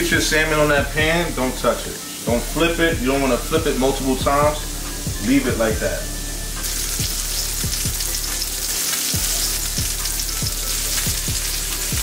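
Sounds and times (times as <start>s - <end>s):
background music with regular beat: 0.0s - 12.0s
fish sizzling in frying pan: 1.2s - 4.2s, 6.5s - 12.0s.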